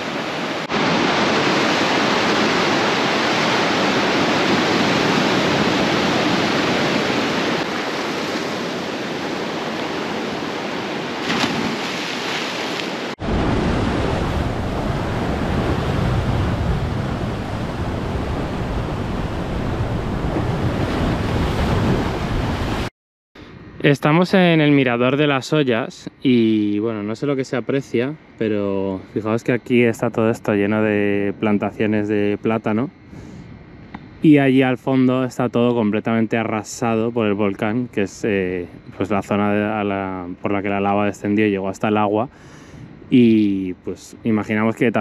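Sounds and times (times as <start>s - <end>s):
water splash: 0.0s - 18.7s
surf breaking against rocks: 0.0s - 22.9s
wind rumbling on microphone: 0.0s - 22.9s.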